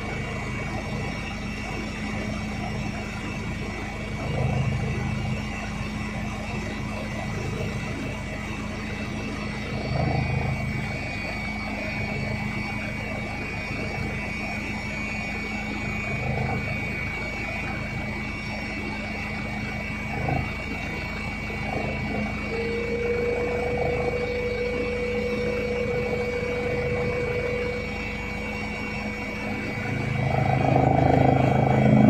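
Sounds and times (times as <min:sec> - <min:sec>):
helicopter engine and rotor drone: 0:00.0 - 0:32.0.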